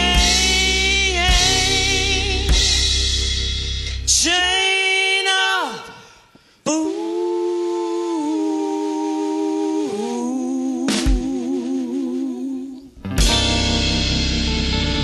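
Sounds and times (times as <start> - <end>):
person singing: 0.0 - 2.9, 6.6 - 13.5
drums: 0.0 - 4.6, 10.8 - 12.4, 13.0 - 15.0
live blues band: 0.0 - 4.6, 13.0 - 15.0.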